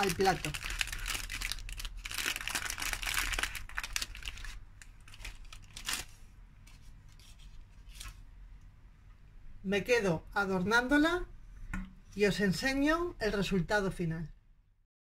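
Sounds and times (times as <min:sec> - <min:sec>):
baking parchment crinkling: 0:00.0 - 0:08.2.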